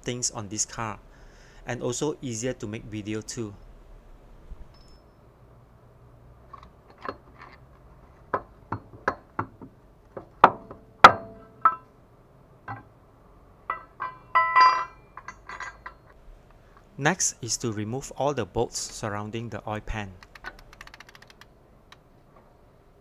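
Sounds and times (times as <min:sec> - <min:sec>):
ringing metal clink: 0:04.7 - 0:05.4, 0:11.1 - 0:11.9, 0:13.7 - 0:16.2
metal clicks and knocks: 0:06.5 - 0:11.9, 0:12.6 - 0:13.0, 0:13.6 - 0:16.2, 0:20.2 - 0:22.4.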